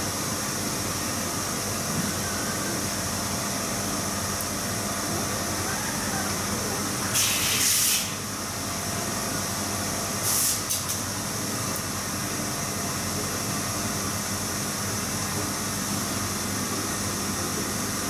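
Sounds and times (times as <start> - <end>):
printer machine hum: 0.0 - 10.3.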